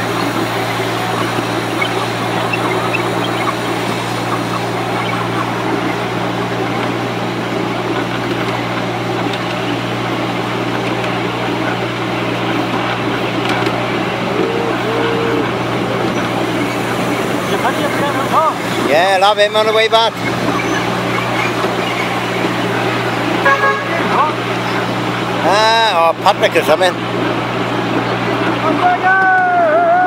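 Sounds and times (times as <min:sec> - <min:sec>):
honk-like tones: 0:00.0 - 0:06.9, 0:13.7 - 0:26.0
locomotive humming: 0:00.0 - 0:30.0
wheels rattling on track: 0:00.0 - 0:30.0.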